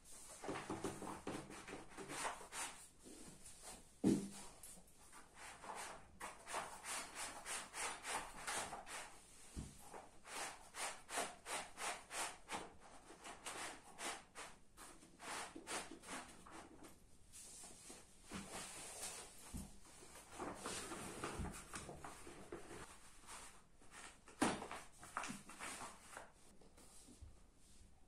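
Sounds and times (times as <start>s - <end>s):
fabric rubbing and rustling: 17.3s - 26.6s.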